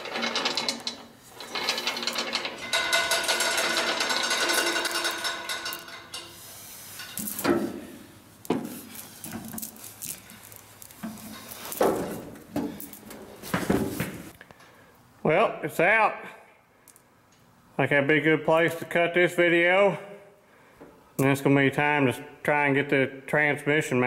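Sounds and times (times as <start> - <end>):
metal clunks and knocks: 7.1 - 9.5.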